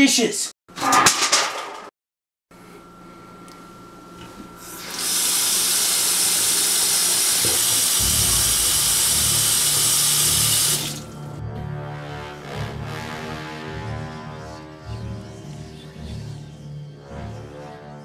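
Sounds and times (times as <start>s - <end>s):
water running into a metal sink: 4.8s - 11.3s.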